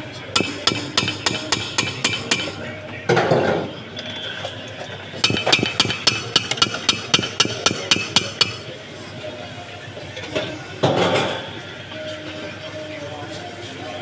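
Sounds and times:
mixer beaters tapping metal bowl: 5.2s - 8.7s.

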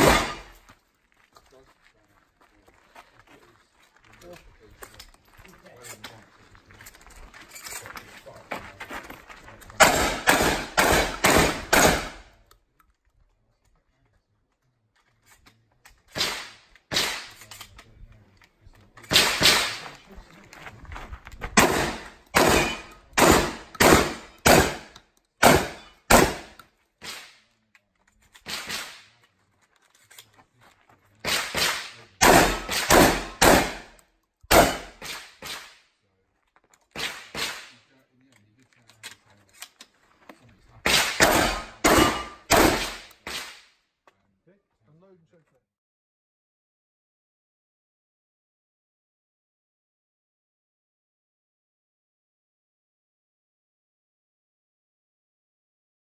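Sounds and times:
shotgun firing: 0.0s - 0.6s, 9.8s - 12.3s, 16.2s - 17.4s, 19.1s - 19.8s, 21.6s - 27.3s, 28.5s - 29.0s, 31.2s - 33.9s, 34.5s - 35.8s, 37.0s - 37.7s, 40.9s - 43.6s.

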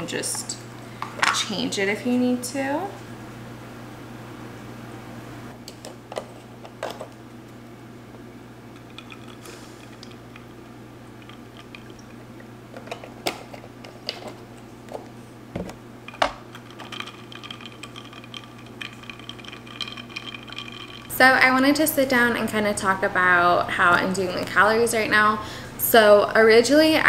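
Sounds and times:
milk being poured: 11.1s - 12.6s, 16.5s - 21.1s.

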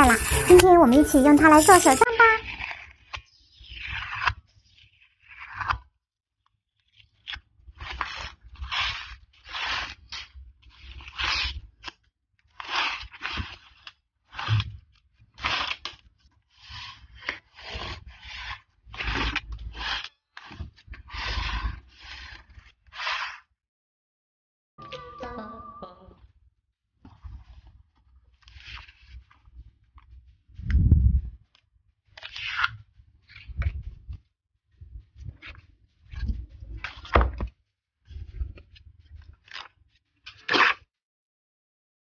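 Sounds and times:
plastic scraper rubbing on paper: 0.0s - 3.0s, 7.7s - 11.8s, 12.5s - 14.6s, 15.2s - 23.5s
tape peeled from roll: 0.0s - 5.8s, 7.0s - 23.5s, 27.2s - 30.7s, 31.4s - 34.2s, 38.0s - 40.9s.

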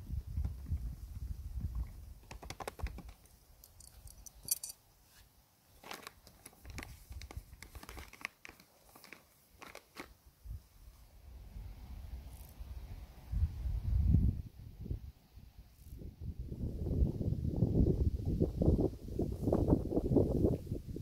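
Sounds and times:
foil pouch crinkling while torn open: 5.8s - 10.2s.

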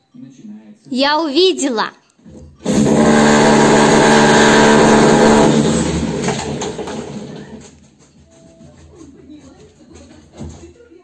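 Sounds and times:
electric power tool humming: 2.6s - 7.6s.

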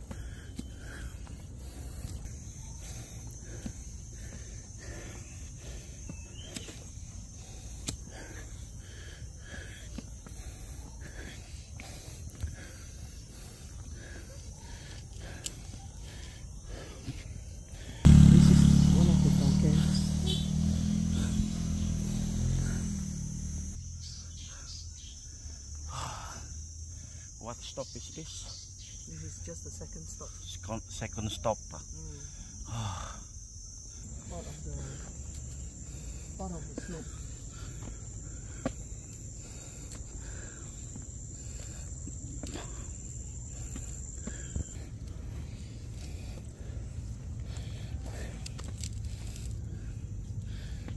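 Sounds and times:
motorcycle engine humming: 0.0s - 11.9s, 12.5s - 24.2s, 33.9s - 50.9s
insects droning: 0.0s - 50.9s.

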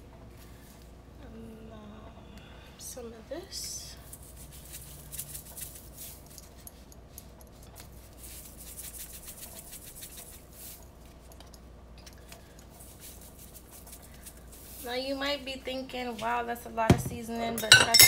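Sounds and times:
spice shaker rattling: 4.0s - 11.6s, 12.2s - 14.8s.

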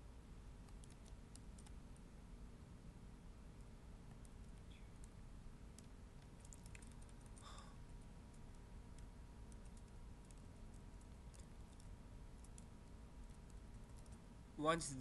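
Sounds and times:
low background hum: 0.0s - 15.0s
computer keyboard and mouse clicks: 0.6s - 1.8s, 4.1s - 7.5s, 8.3s - 14.2s.

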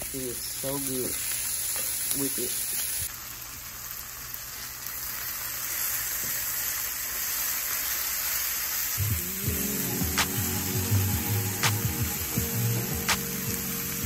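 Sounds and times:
food sizzling in frying pan: 0.0s - 14.0s
music: 9.0s - 14.0s.

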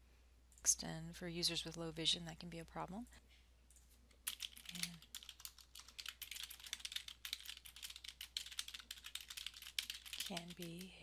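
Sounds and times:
fast keyboard typing: 4.3s - 11.0s.

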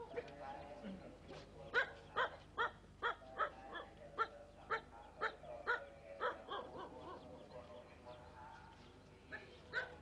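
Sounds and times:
dog barking: 1.7s - 7.2s, 9.7s - 10.0s.

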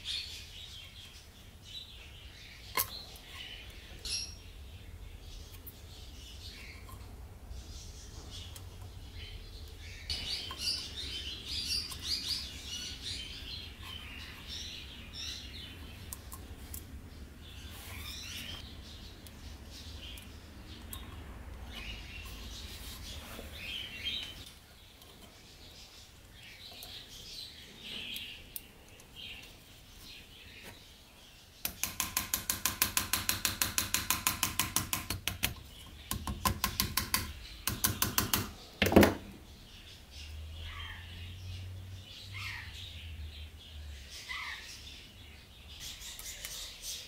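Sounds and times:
small hammer tapping metal: 31.6s - 39.0s.

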